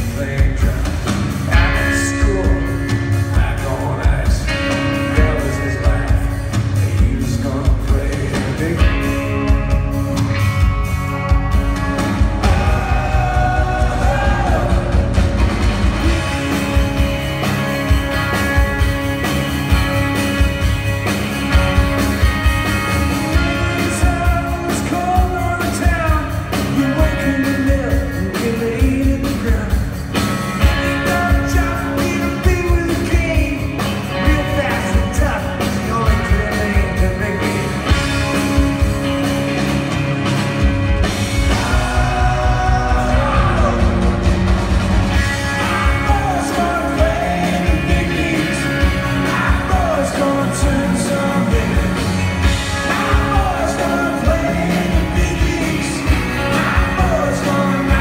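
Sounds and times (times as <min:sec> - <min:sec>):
live rock band playing: 0:00.0 - 0:58.0
person singing: 0:12.2 - 0:15.2, 0:41.3 - 0:44.2, 0:45.4 - 0:58.0.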